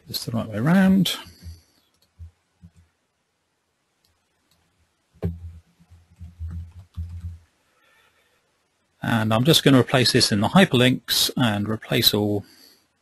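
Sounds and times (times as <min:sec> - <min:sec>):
typing on computer keyboard: 0:06.2 - 0:07.4.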